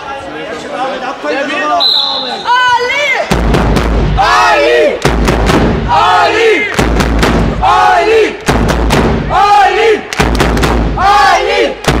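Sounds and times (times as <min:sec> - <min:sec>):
crowd shouting and cheering: 0:00.0 - 0:12.0
heavy low thumps: 0:03.3 - 0:04.4, 0:05.0 - 0:06.2, 0:06.8 - 0:09.4, 0:10.2 - 0:11.2
sharp bangs: 0:03.3 - 0:09.4, 0:10.1 - 0:11.0.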